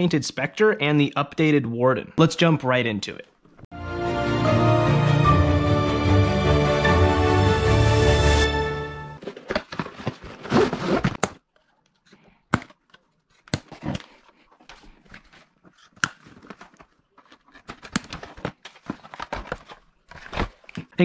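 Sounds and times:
packaging rustling and tearing: 9.2 - 11.4, 12.8 - 21.0.

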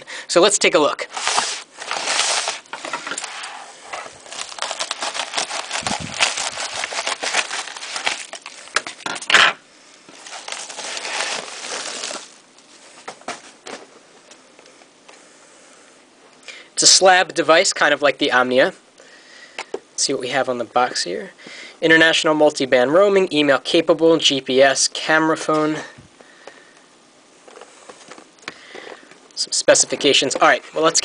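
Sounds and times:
plastic envelope crinkling: 1.0 - 9.3, 10.1 - 13.8.

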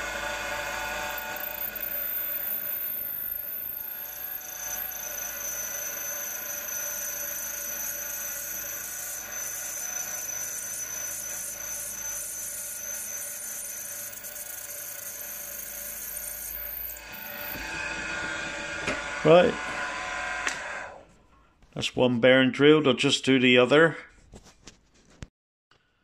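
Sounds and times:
milling machine drilling metal: 0.0 - 19.8.

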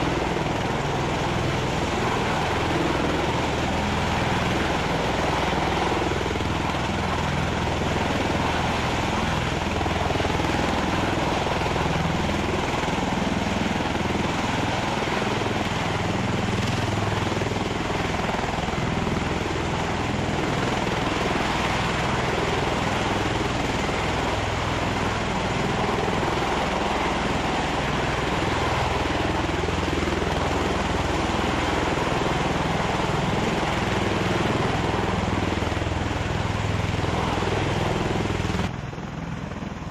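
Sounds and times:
loud drone of rotors and engines: 0.0 - 39.9.

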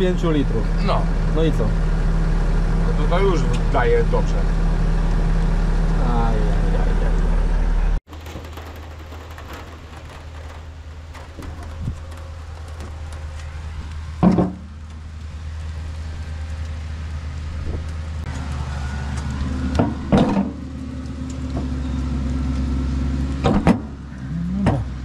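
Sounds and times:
tractor engine humming: 0.0 - 25.0
sharp knocks: 14.2 - 14.7, 23.4 - 24.0.

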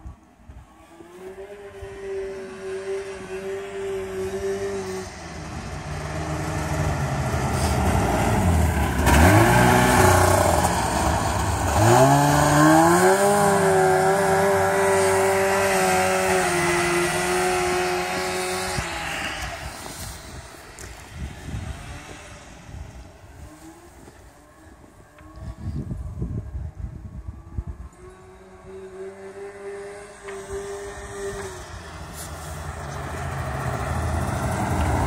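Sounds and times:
snowmobile engine running: 0.8 - 25.8.

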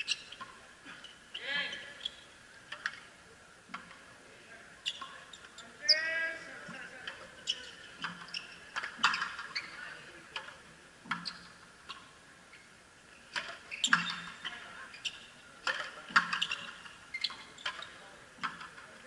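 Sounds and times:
ball hitting racquets and wall: 7.0 - 9.6, 13.3 - 14.6, 15.6 - 19.0.

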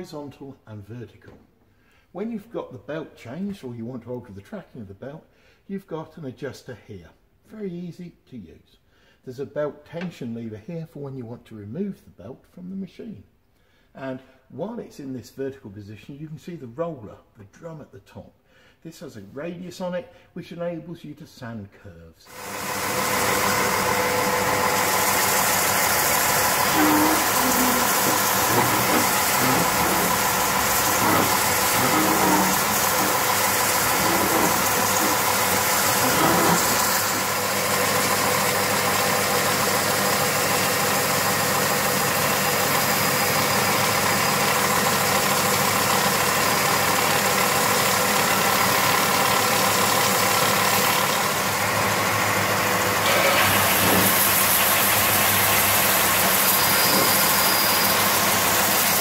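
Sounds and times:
belt sander running: 22.3 - 59.0
wood sanding on belt: 22.8 - 38.2, 53.0 - 59.0.

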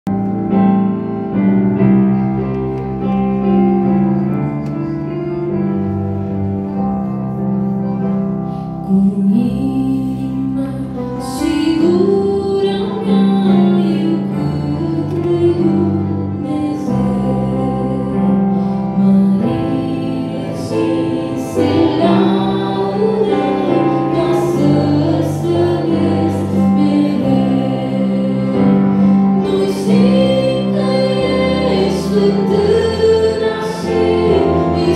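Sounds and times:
young woman singing a hymn: 8.8 - 34.9.

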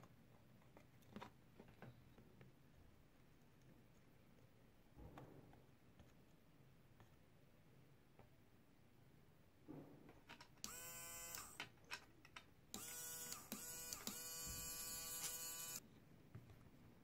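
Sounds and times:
electric screwdriver motor whining: 10.6 - 11.6, 12.7 - 15.8.

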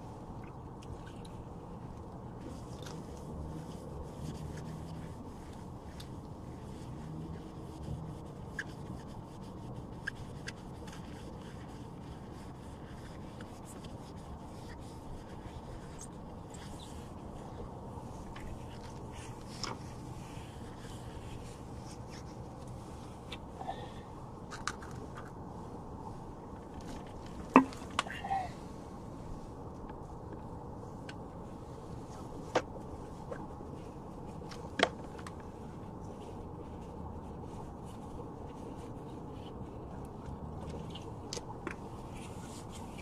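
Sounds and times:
low steady hum: 0.0 - 43.0
cloth rubbing faint scrapes: 2.4 - 30.2.

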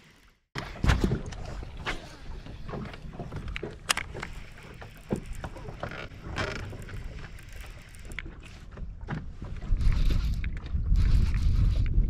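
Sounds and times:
wind buffeting microphone: 8.8 - 12.0.

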